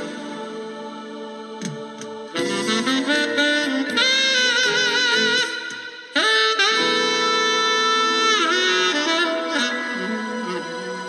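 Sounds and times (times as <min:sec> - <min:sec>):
slow saxophone melody: 0:02.3 - 0:11.0.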